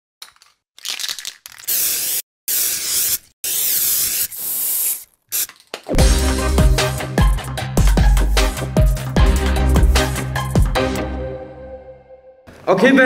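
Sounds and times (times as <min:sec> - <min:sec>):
spray paint can hissing: 0:01.1 - 0:05.8
electronic music with heavy bass: 0:06.0 - 0:10.9.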